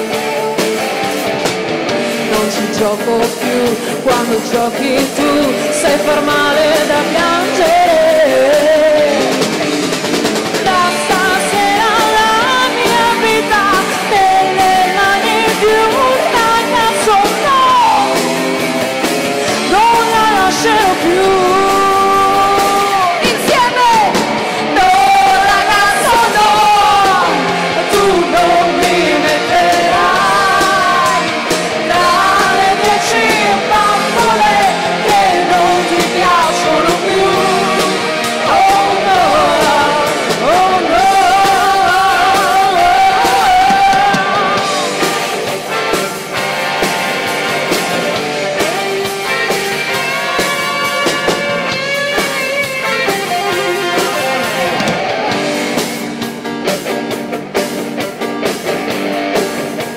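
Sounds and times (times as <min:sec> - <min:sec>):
electric guitar: 0:00.0 - 0:59.9
live pop-rock band playing: 0:00.0 - 0:59.9
women singing: 0:02.2 - 0:09.5, 0:10.5 - 0:18.4, 0:19.6 - 0:45.5.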